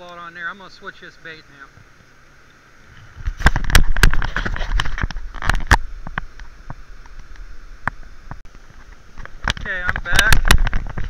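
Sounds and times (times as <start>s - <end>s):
steady hiss: 0.0s - 11.0s.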